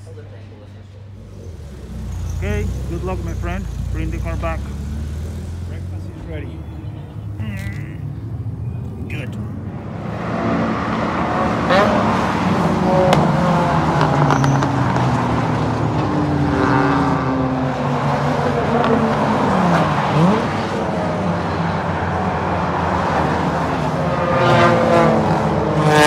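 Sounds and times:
race car engines: 0:00.0 - 0:26.0
engine accelerating sharply: 0:01.2 - 0:06.3.

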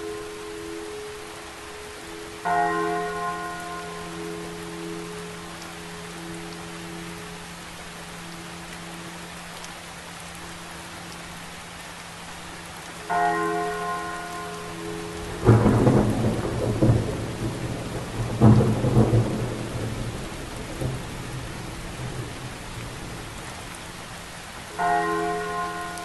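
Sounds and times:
heavy rain: 0:00.0 - 0:26.0
church bell ringing: 0:02.4 - 0:05.6, 0:13.1 - 0:16.4, 0:24.8 - 0:26.0
thunder rumbling: 0:15.2 - 0:23.7.

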